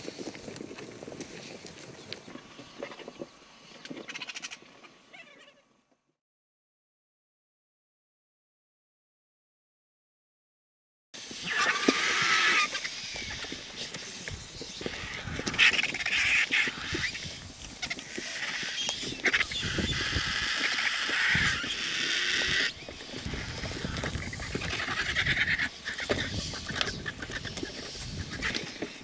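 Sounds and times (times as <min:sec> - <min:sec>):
vultures squealing and hissing: 0:02.2 - 0:05.6, 0:11.2 - 0:29.0.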